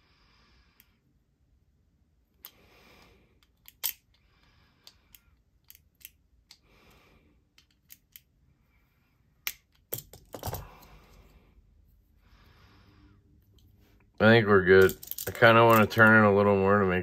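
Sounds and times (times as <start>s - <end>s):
metal clicks of locking pliers: 4.8s - 6.6s.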